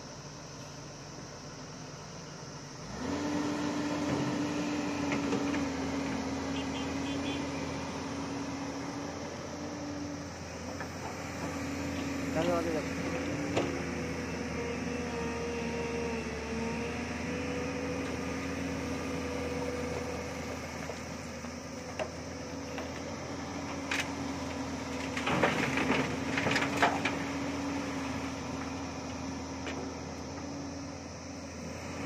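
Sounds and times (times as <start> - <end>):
excavator diesel engine running: 0.0 - 32.0
gravel clattering into truck bed: 24.8 - 27.4.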